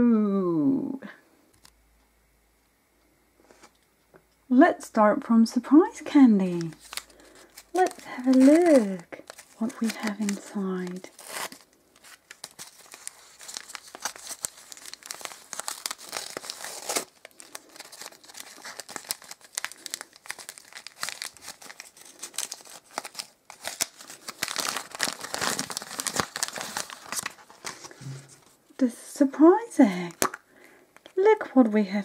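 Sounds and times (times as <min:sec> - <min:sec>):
paper crinkling and tearing: 0:06.4 - 0:28.6.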